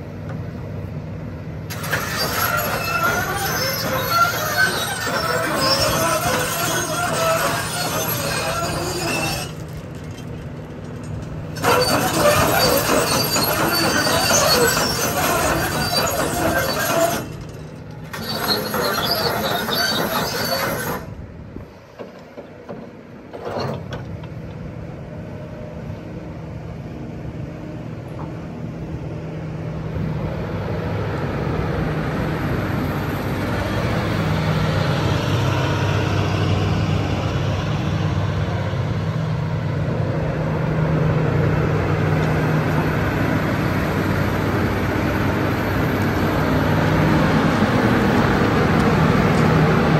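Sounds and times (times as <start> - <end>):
diesel engine humming: 0.0 - 49.9
crawler tracks clanking and squealing: 1.7 - 24.4, 42.1 - 49.9.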